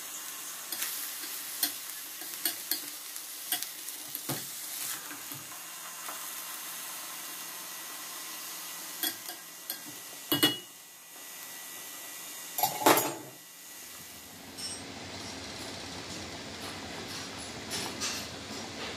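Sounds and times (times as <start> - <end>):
spoon clinking on metal pot: 9.0 - 10.7.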